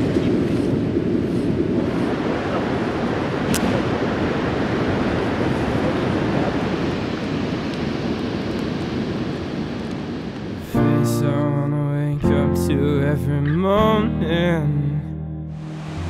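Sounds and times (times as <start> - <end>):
wind on microphone: 0.0 - 10.8
ocean surf: 0.0 - 16.0.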